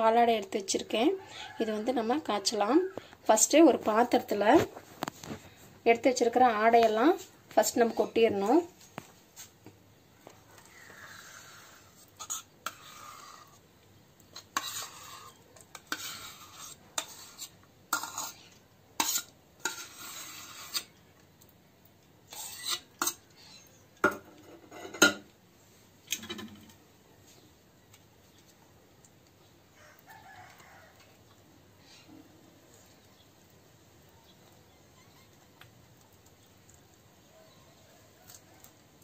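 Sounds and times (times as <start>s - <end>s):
metal cup and pan scraping: 10.9s - 13.6s, 14.3s - 21.0s, 22.3s - 25.3s.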